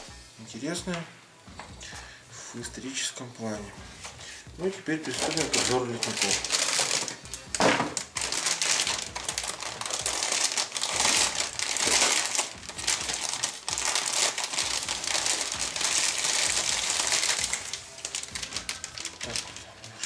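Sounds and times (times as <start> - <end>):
plastic bag crinkling: 4.9 - 20.0.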